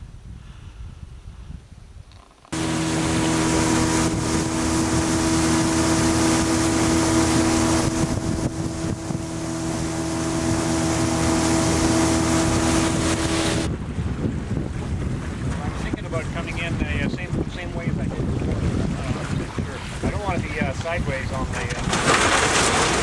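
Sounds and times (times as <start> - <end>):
outboard motor running: 2.5 - 23.0
water churning: 2.5 - 23.0
wind rushing: 2.6 - 20.7.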